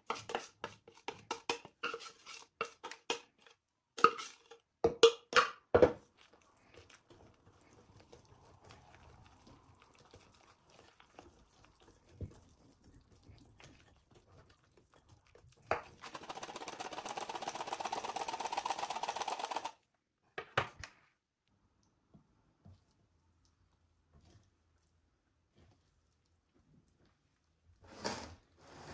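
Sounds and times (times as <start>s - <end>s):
whisk beating batter in bowl: 0.0s - 3.4s, 6.7s - 19.7s.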